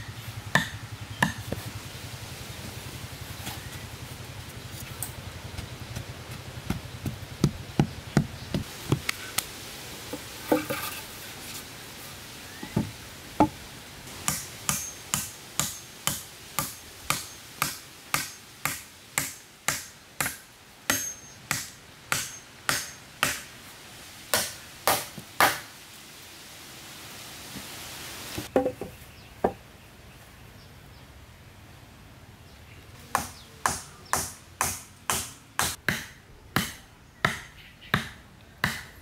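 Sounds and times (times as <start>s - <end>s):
hand tool striking wood: 0.6s - 1.6s, 14.2s - 23.5s, 24.3s - 25.7s, 33.2s - 38.9s.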